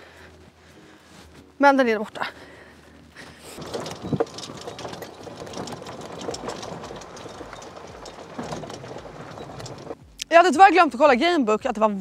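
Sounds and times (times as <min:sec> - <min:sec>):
small motor clattering: 0:03.6 - 0:10.0.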